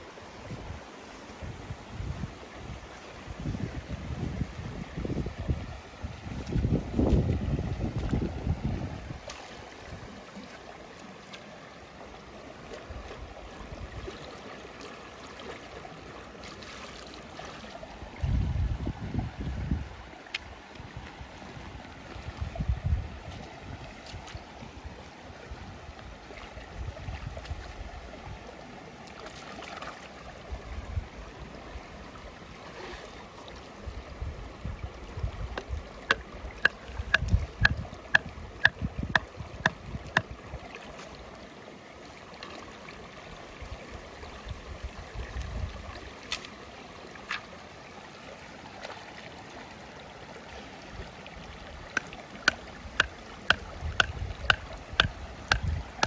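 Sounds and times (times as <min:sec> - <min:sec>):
flowing water: 0:00.0 - 0:56.0
wind rumble on microphone: 0:00.4 - 0:10.2, 0:18.0 - 0:28.4, 0:30.4 - 0:31.9, 0:33.8 - 0:40.6, 0:44.4 - 0:46.0, 0:53.0 - 0:56.0
stake being hammered: 0:36.1 - 0:40.3, 0:52.5 - 0:55.7.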